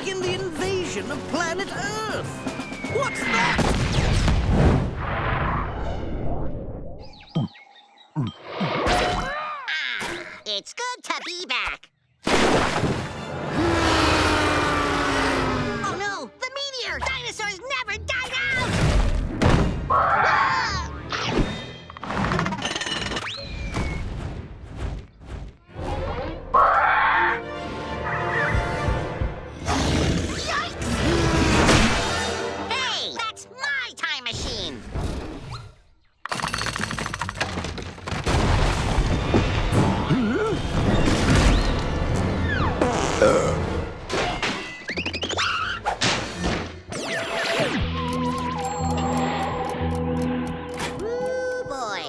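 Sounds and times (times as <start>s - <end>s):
falling whistle: 2.6s - 3.6s.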